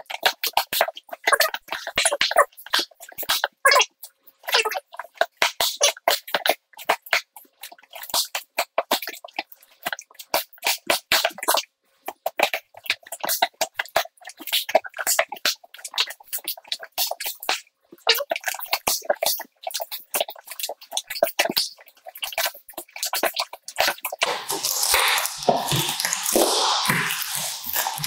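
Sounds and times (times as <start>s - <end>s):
pencil scratching packing tape: 23.8s - 28.0s.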